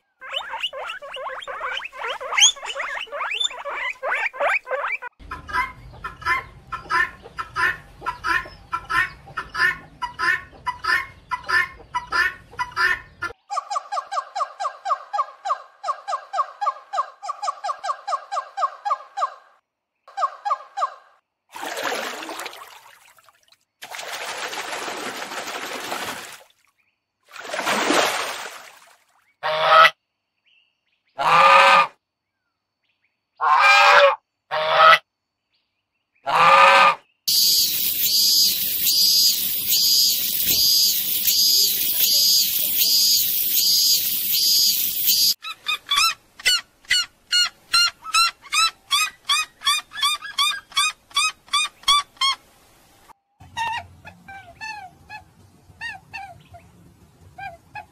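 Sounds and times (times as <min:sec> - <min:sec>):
birds yelping: 0:00.2 - 0:19.5
geese honking: 0:36.3 - 0:43.1
high repeating chirring: 0:37.3 - 0:45.4.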